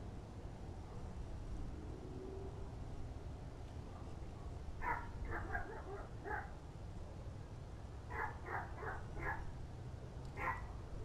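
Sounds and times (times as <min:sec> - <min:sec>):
dog barking: 0:04.0 - 0:06.5, 0:08.1 - 0:09.5, 0:10.4 - 0:10.7.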